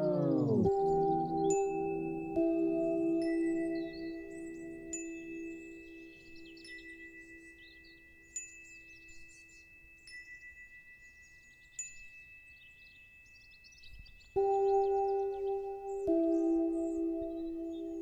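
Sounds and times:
low sustained drone: 0:00.0 - 0:06.6, 0:14.4 - 0:18.0
bell-like chime: 0:00.0 - 0:18.0.

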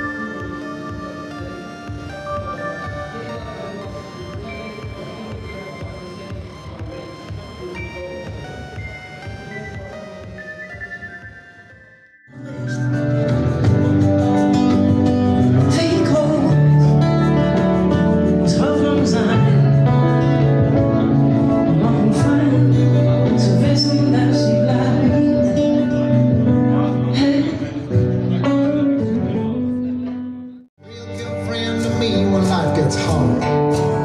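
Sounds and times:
guitars playing: 0:00.0 - 0:05.4, 0:09.7 - 0:34.0
different music: 0:00.0 - 0:34.0
person singing: 0:12.3 - 0:29.7.

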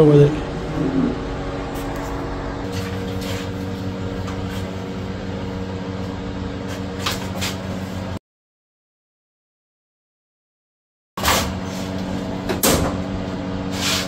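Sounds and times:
machine hum: 0:00.0 - 0:08.2.

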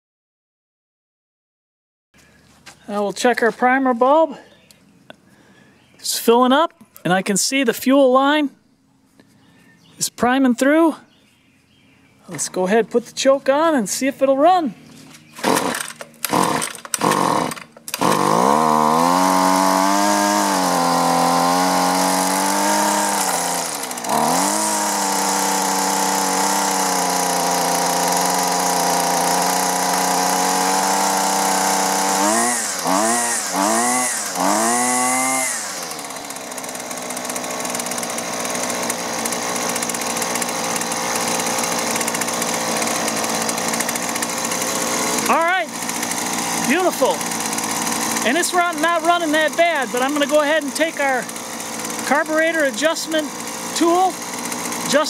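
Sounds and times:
string trimmer engine revving: 0:12.3 - 0:55.0
starter cord pulls: 0:15.1 - 0:55.0.

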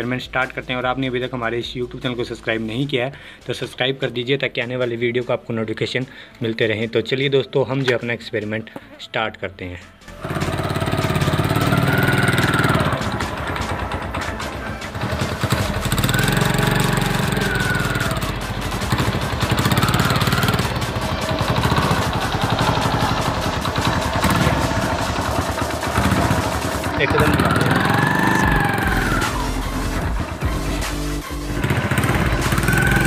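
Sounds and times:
small motorcycle engine revving: 0:10.2 - 0:30.4, 0:31.4 - 0:33.0.

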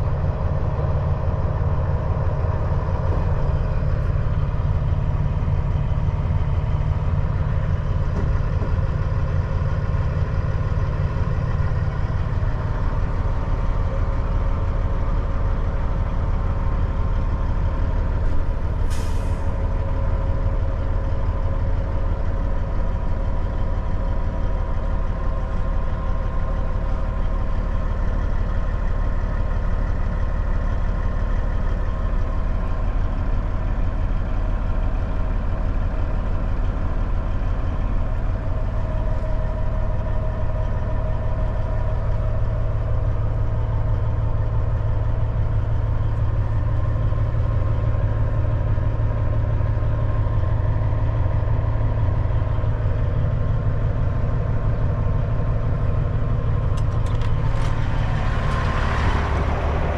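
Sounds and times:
diesel truck engine idling: 0:00.0 - 0:59.9
air hiss from truck brakes: 0:18.8 - 0:19.6.

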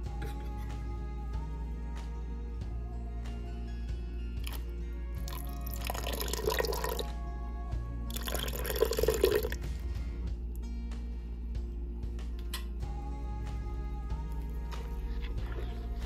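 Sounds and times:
background music: 0:00.0 - 0:16.0
liquid pouring and splashing into pot: 0:05.2 - 0:07.1, 0:08.1 - 0:09.6.

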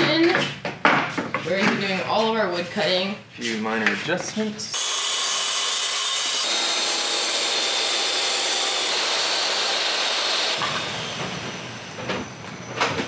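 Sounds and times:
table saw cutting wood: 0:04.7 - 0:12.6.

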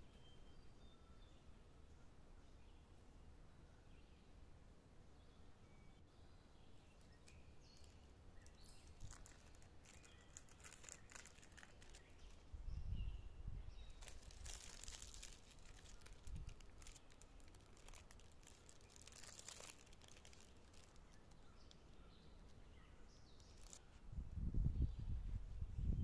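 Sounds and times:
plastic film crinkling: 0:07.0 - 0:12.5, 0:13.9 - 0:21.9, 0:23.4 - 0:23.9.

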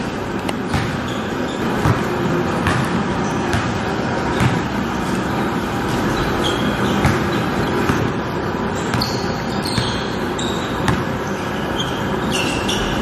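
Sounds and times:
sneakers squeaking: 0:00.0 - 0:13.0
basketball bouncing on wooden floor: 0:00.6 - 0:04.7, 0:06.9 - 0:08.1, 0:10.8 - 0:11.2.

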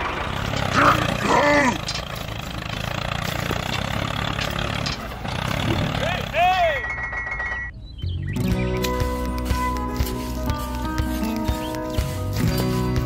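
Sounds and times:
tractor engine idling: 0:00.0 - 0:07.7, 0:08.7 - 0:13.0.

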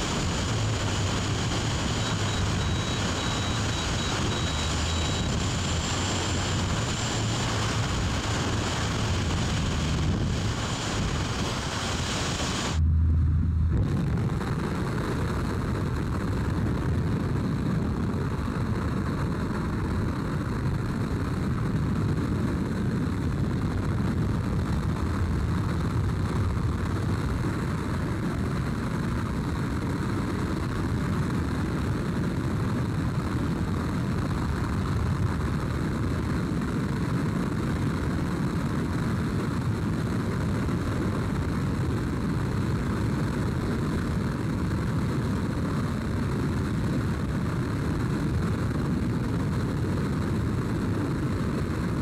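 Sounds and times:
plane engine drone: 0:00.0 - 0:52.0
rushing air: 0:04.0 - 0:15.6
low thump: 0:12.8 - 0:14.4.

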